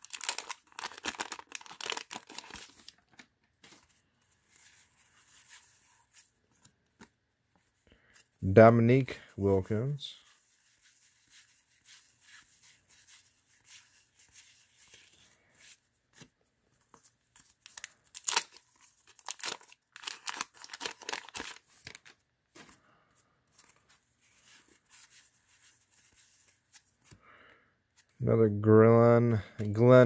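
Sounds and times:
paper wrapper crinkling and tearing: 0.0s - 6.3s, 16.9s - 22.8s
cards being handled: 0.1s - 8.4s, 10.2s - 22.8s, 23.5s - 27.2s.

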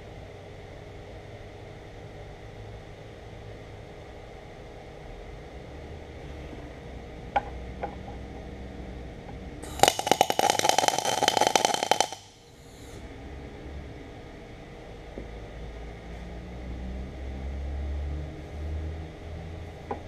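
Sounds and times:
welder arc crackling: 9.6s - 12.5s.

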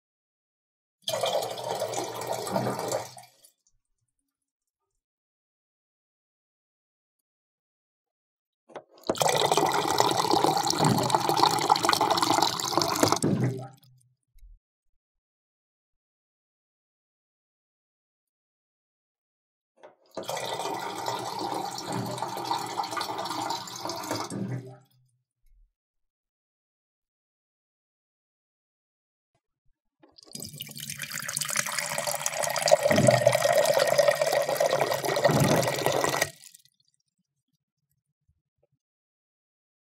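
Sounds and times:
water pouring into container: 1.1s - 3.5s, 9.0s - 13.7s, 20.2s - 24.4s, 30.2s - 37.0s.

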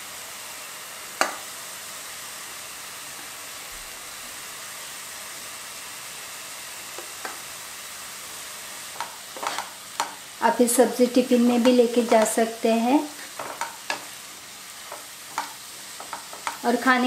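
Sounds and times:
greens sizzling in oil: 0.0s - 17.0s
sharp taps on pan: 1.2s - 1.4s, 9.0s - 10.2s, 11.6s - 12.4s, 13.4s - 14.1s, 14.9s - 16.6s.

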